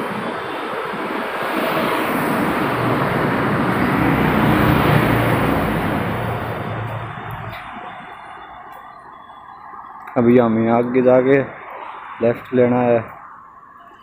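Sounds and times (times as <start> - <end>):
traffic noise: 0.0 - 14.0
motorcycle passing: 1.8 - 7.6.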